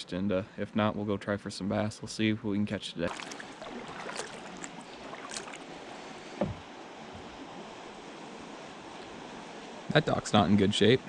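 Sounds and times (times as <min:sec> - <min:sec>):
kayak paddle splashing water: 0:03.0 - 0:06.7
short knock: 0:06.4 - 0:06.6.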